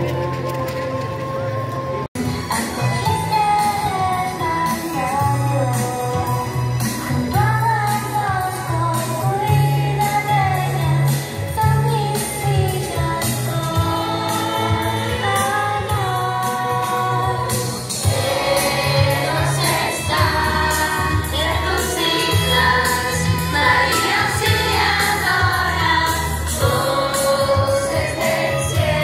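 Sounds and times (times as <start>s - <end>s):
choir singing: 13.9s - 15.4s, 18.0s - 29.0s.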